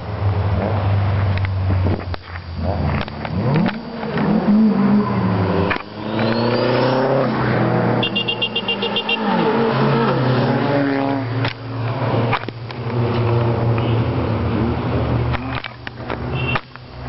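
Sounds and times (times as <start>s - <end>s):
cars driving past revving: 0.0s - 17.0s.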